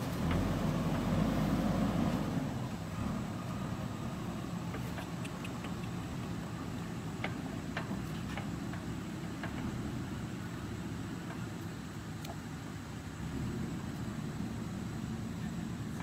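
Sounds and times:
diesel engine humming: 0:00.0 - 0:16.0
faint clicks: 0:04.7 - 0:06.3.

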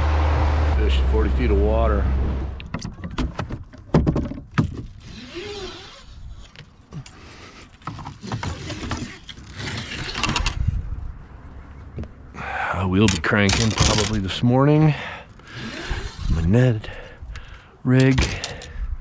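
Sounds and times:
clicks and knocks of gear: 0:13.0 - 0:14.2, 0:17.4 - 0:18.8.

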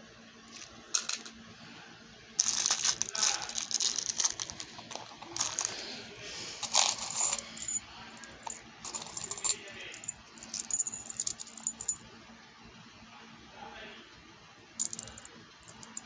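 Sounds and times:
metal charms clinking: 0:02.4 - 0:05.8, 0:06.6 - 0:12.0, 0:14.8 - 0:16.0.

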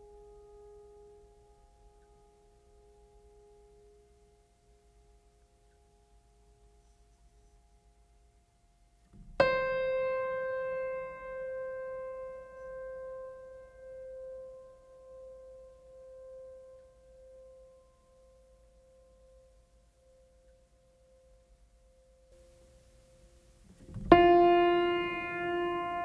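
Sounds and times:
soft held tones: 0:00.0 - 0:26.0
keyboard note ringing: 0:24.0 - 0:26.0.

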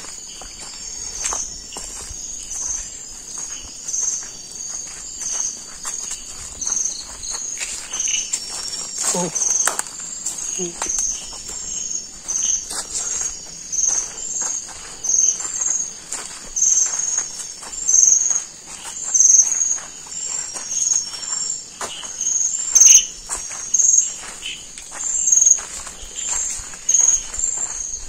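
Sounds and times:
footsteps on path: 0:00.0 - 0:28.0
night insects chirping: 0:00.0 - 0:28.0
rustling of plants: 0:00.0 - 0:28.0.

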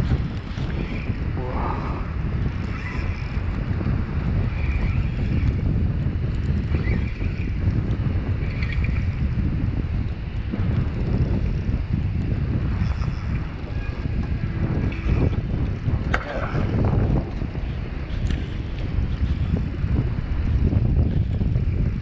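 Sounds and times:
wind buffeting microphone: 0:00.0 - 0:22.0
fishing reel being wound: 0:01.7 - 0:03.8.

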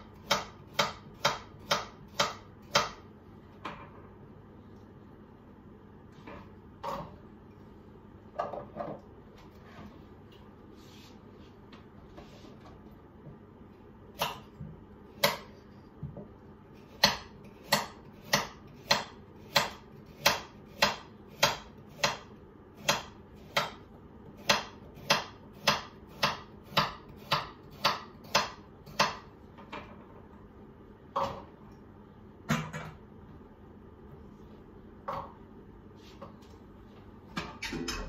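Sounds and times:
knife chopping carrots on board: 0:00.0 - 0:03.1, 0:14.2 - 0:29.3.

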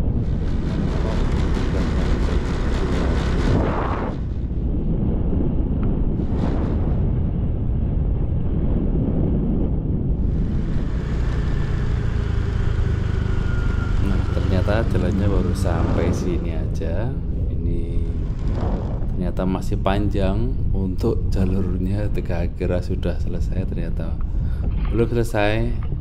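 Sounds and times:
motorcycle engine: 0:00.0 - 0:04.4, 0:10.2 - 0:16.8
wind rush on microphone: 0:00.0 - 0:26.0.

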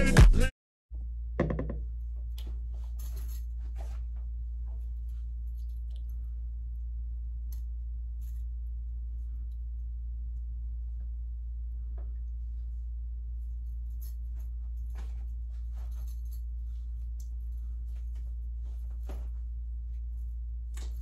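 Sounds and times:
low hum of room tone: 0:01.0 - 0:21.0.

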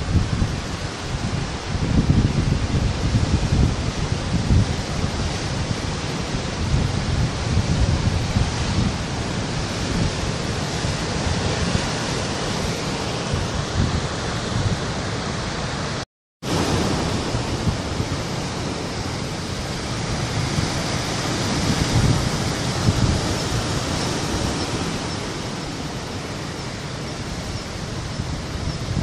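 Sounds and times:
surf breaking over rocks: 0:16.4 - 0:29.0.

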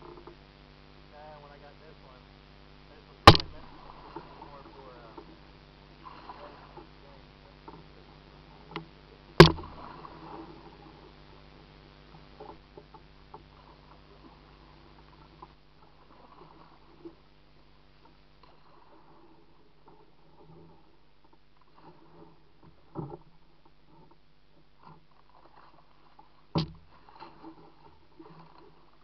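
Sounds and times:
paddle and water sounds: 0:00.0 - 0:29.0
knocks on kayak: 0:03.3 - 0:03.8, 0:09.4 - 0:09.8, 0:26.6 - 0:26.9.

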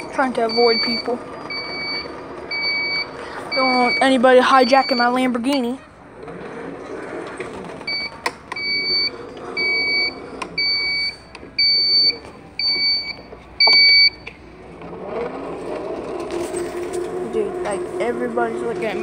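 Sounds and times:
electronic reversing beeps: 0:00.0 - 0:05.2, 0:07.9 - 0:14.3.

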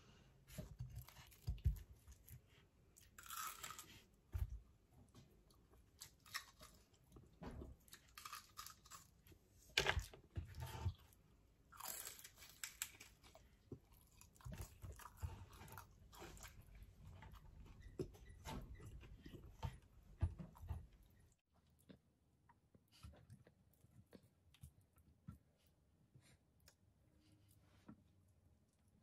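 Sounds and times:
person crunching and chewing food: 0:00.9 - 0:04.5, 0:05.4 - 0:17.6.

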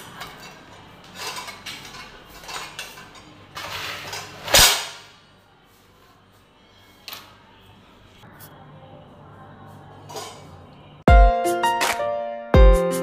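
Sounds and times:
dishes clattering into rack: 0:00.0 - 0:05.0.

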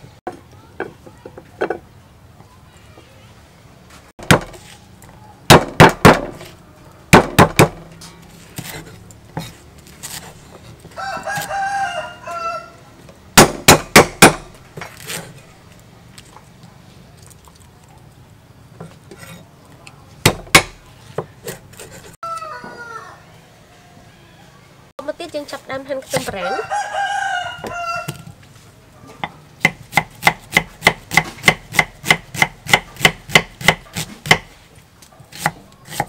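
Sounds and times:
cleaver chopping on wooden block: 0:04.2 - 0:04.6, 0:05.5 - 0:06.5, 0:07.1 - 0:07.8, 0:13.4 - 0:15.2, 0:20.2 - 0:21.6, 0:29.6 - 0:34.5, 0:35.3 - 0:36.0
rooster crowing: 0:10.9 - 0:12.9, 0:22.2 - 0:24.7, 0:26.4 - 0:28.3.

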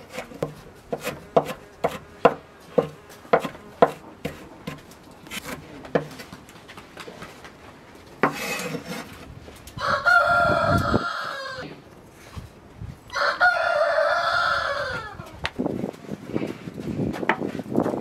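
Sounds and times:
rooster crowing: 0:09.8 - 0:11.7, 0:13.1 - 0:15.4.

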